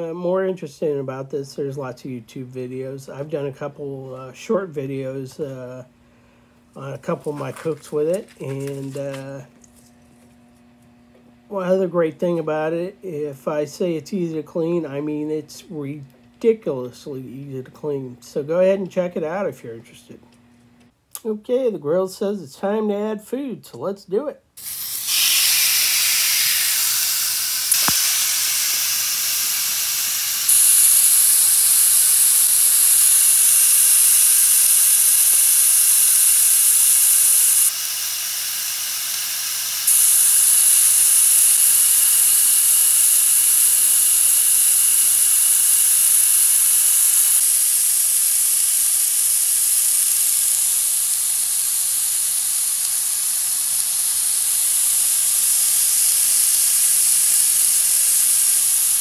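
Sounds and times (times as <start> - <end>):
steaks sizzling on grill: 24.6 - 59.0
single click: 27.7 - 28.3.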